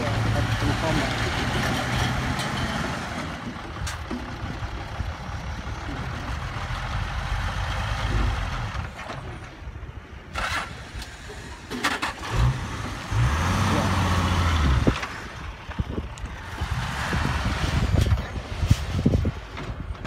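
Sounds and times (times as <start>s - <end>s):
diesel truck engine running: 0.0s - 20.0s
dirt load rushing out: 10.3s - 20.0s.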